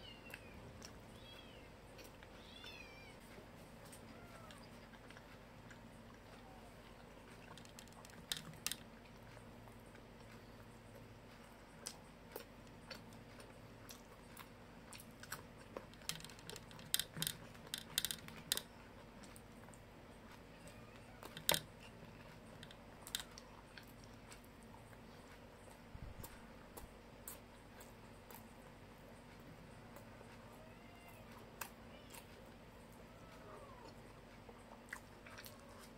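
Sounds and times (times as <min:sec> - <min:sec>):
chewing and mouth smacks: 0:03.8 - 0:20.4, 0:21.2 - 0:30.5, 0:31.2 - 0:35.9
fingers working food on a plate: 0:15.6 - 0:18.8.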